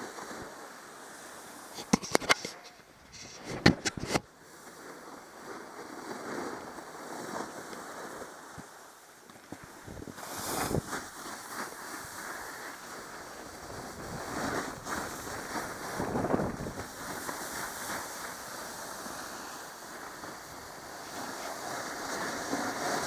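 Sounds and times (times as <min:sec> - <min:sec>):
snowboard scraping over snow: 0:03.1 - 0:08.6, 0:09.5 - 0:23.0
wind on microphone: 0:09.5 - 0:11.1, 0:13.3 - 0:17.9.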